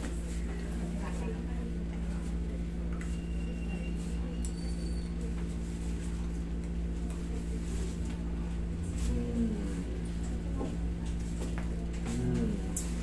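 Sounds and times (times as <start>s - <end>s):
air conditioner hum: 0.0s - 13.0s
man's low vocal sound: 8.9s - 10.3s, 12.0s - 13.0s.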